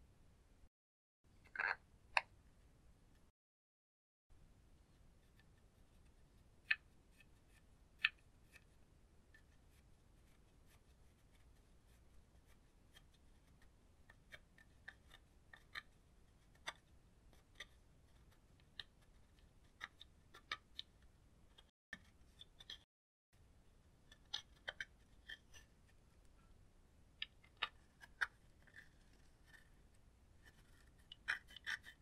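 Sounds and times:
plastic spatula scraping eyeshadow: 5.2s - 22.9s, 24.0s - 26.4s, 27.2s - 32.0s.

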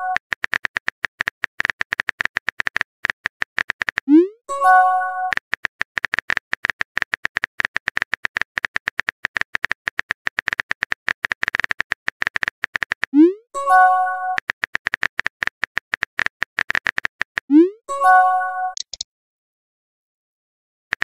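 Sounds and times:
phone keyboard clicking: 0.1s - 4.1s, 5.3s - 13.2s, 14.4s - 17.5s, 18.8s - 19.0s.

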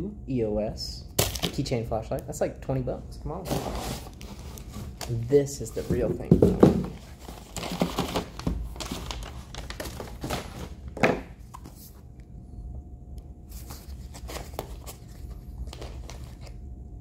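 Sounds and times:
paper and cardboard rustling: 3.4s - 12.0s, 13.5s - 16.6s.

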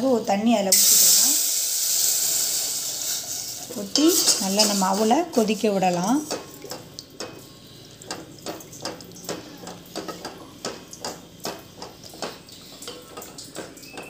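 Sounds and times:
spatula scraping steel pot: 3.1s - 5.5s.

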